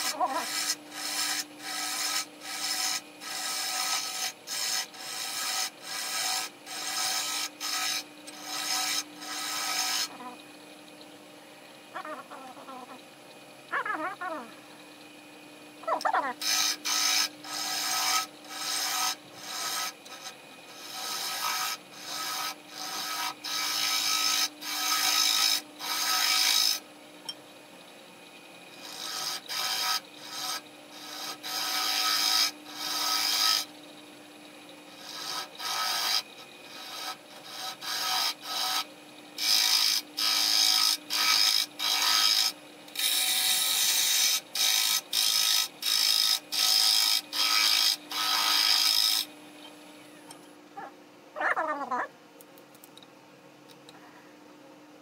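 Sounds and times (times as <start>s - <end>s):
bowl gouge scraping wood: 0.0s - 10.4s, 16.0s - 26.8s, 39.5s - 49.3s
lathe humming: 0.0s - 13.8s, 14.5s - 50.4s.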